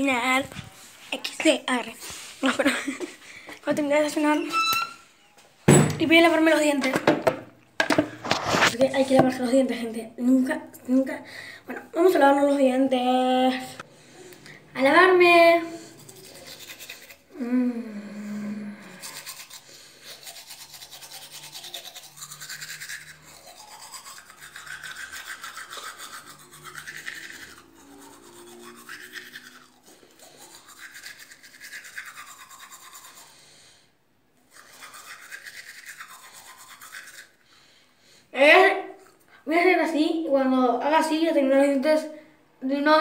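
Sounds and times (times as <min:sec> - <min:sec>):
toothbrush scrubbing teeth: 0:13.6 - 0:17.6, 0:18.2 - 0:33.6, 0:34.4 - 0:37.7.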